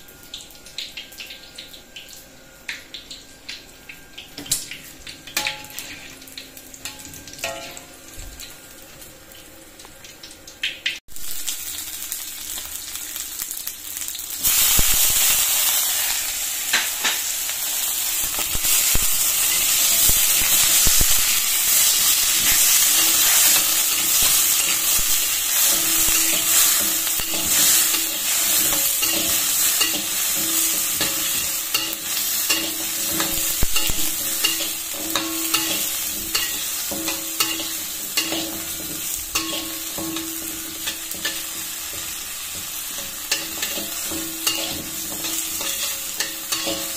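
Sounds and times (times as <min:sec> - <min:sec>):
food sizzling in hot oil: 0:00.0 - 0:46.9
metal spatula scraping a wok: 0:21.7 - 0:46.9.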